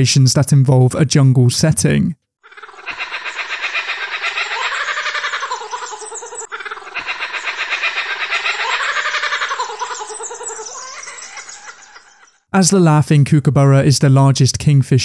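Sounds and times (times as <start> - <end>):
kookaburra laughing call: 2.4 - 12.4.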